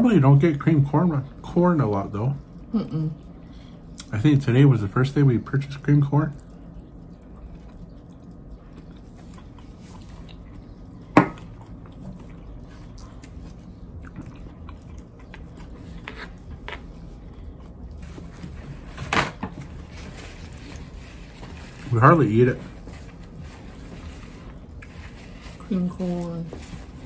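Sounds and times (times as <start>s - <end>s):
low steady hum: 0.0s - 27.0s.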